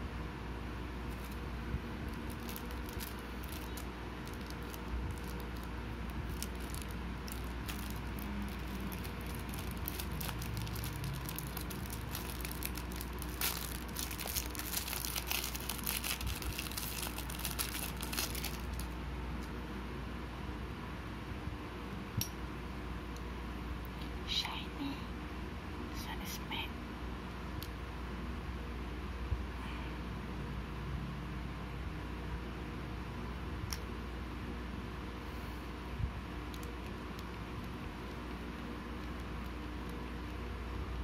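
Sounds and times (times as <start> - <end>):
plastic wrapping crinkling: 1.0 - 19.6.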